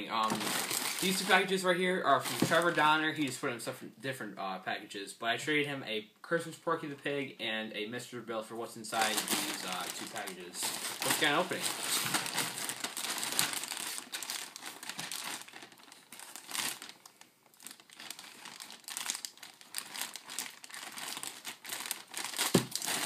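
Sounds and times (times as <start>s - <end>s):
plastic mailing bag crinkling: 0.0s - 3.4s, 8.9s - 23.0s.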